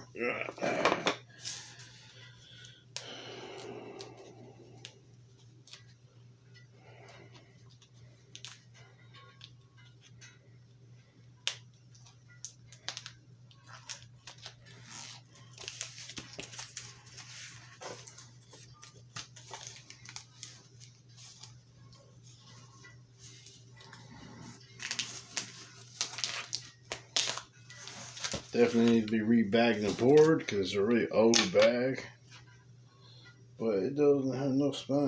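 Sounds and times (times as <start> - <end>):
steady low hum: 0.0 - 35.0
cardboard tearing and rustling: 24.8 - 29.0.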